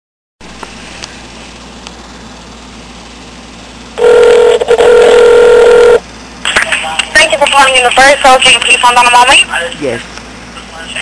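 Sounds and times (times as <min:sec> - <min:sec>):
telephone line hiss: 0:04.0 - 0:06.0
telephone ringback tone: 0:04.0 - 0:06.0.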